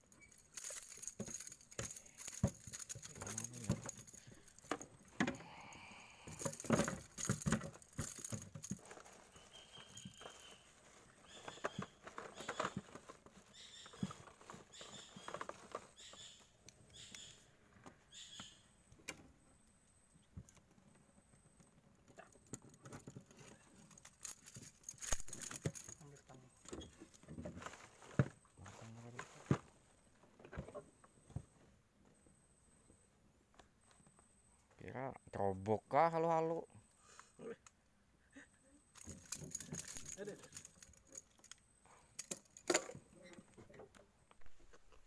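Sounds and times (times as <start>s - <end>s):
brief rustle: 22.6s - 29.8s, 39.0s - 41.6s.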